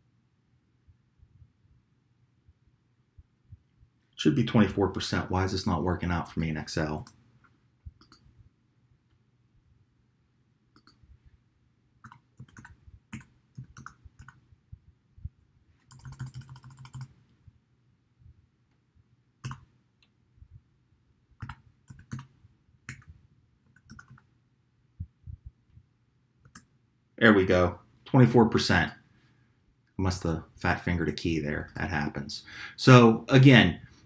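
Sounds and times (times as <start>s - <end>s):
computer keyboard keystrokes: 12.0s - 14.4s, 15.9s - 17.1s, 21.4s - 22.3s, 23.7s - 24.2s.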